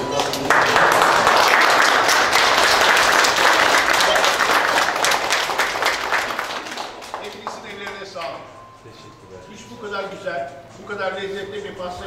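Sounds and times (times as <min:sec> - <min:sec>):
people clapping: 0:00.0 - 0:08.5.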